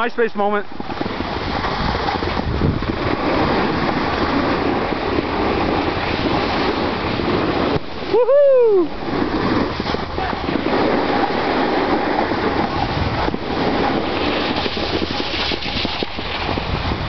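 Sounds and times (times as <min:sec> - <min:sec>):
snowboard sliding over snow: 0:00.0 - 0:17.0
wind on microphone: 0:00.0 - 0:17.0
person whooping: 0:08.0 - 0:09.0.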